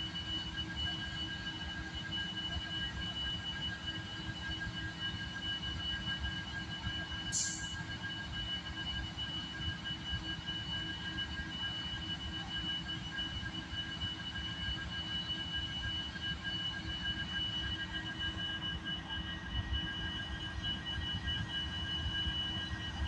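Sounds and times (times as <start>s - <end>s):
high-pitched whine: 0.0s - 23.0s.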